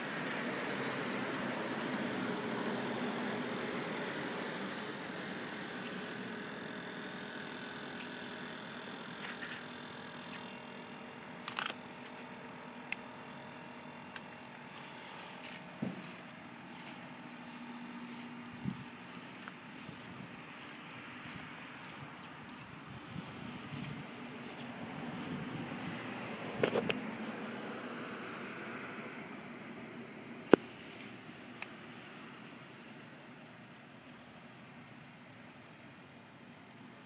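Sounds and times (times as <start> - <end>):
model train motor hum: 0.2 - 13.4, 14.0 - 27.4.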